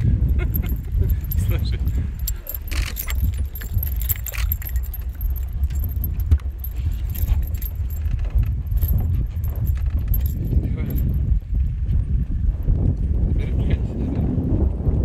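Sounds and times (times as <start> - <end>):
fishing gear rattling: 0.0 - 11.4
wind buffeting microphone: 0.0 - 15.0.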